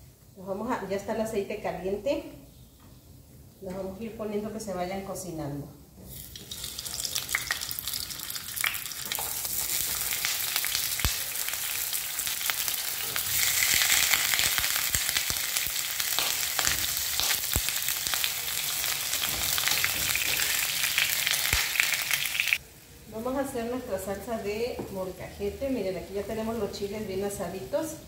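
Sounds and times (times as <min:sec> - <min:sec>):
meat sizzling in frying pan: 0:06.1 - 0:22.9.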